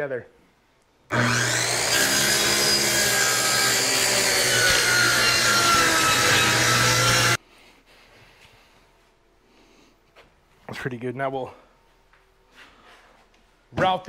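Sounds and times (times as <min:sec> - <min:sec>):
circular saw cutting plywood: 0:01.1 - 0:07.4.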